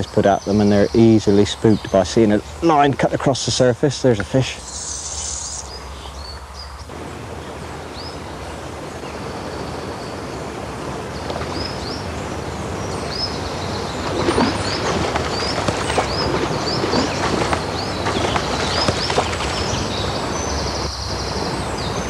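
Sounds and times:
bird chirping: 4.2 - 6.9, 11.2 - 22.0.

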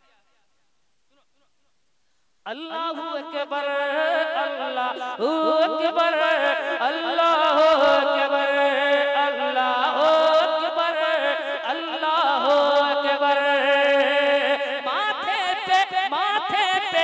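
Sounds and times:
voices singing wordless melody: 2.5 - 17.0.

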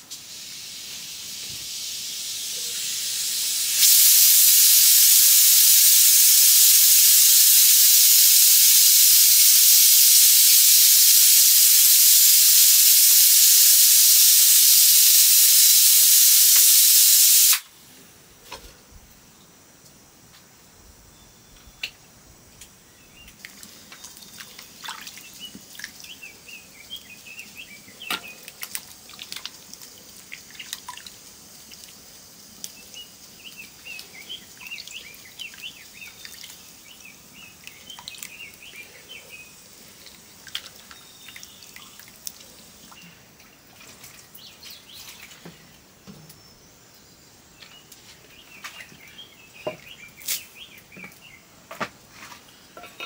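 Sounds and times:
food sizzling in a pan: 0.2 - 17.6
small birds chirping: 32.7 - 43.2, 44.4 - 51.5.

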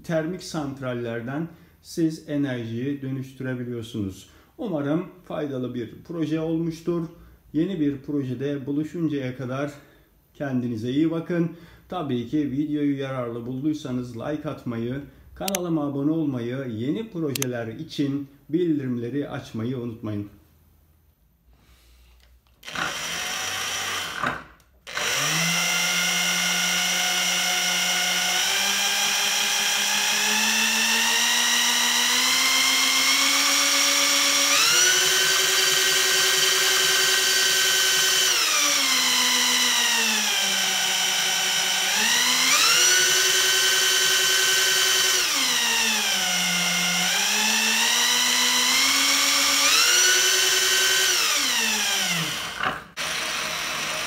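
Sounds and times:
power drill whining: 22.6 - 54.0.

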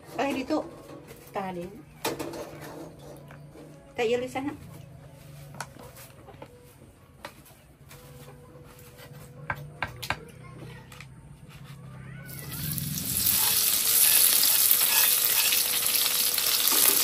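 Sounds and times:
vegetables sizzling in hot oil: 12.3 - 17.0.

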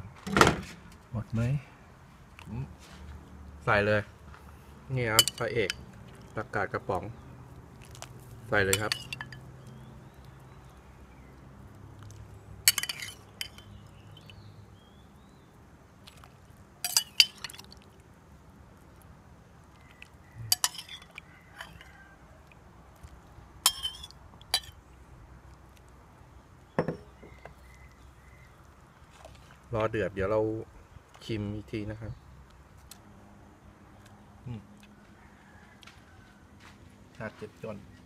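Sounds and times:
metal spoon clinking on bowl: 5.2 - 5.8, 8.7 - 9.5, 12.7 - 14.4, 16.8 - 17.6, 20.5 - 21.9, 23.7 - 24.8
pot boiling: 19.0 - 22.2.

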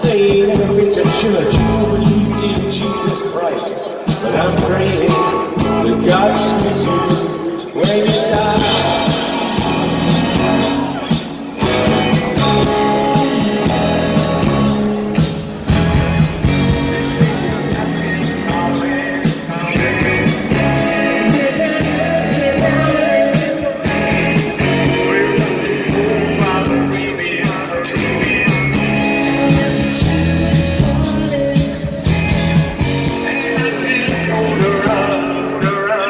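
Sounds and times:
live rock band playing: 0.0 - 36.0.

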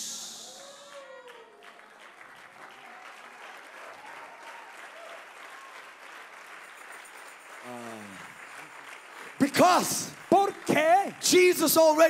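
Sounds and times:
congregation clapping: 0.0 - 12.0.

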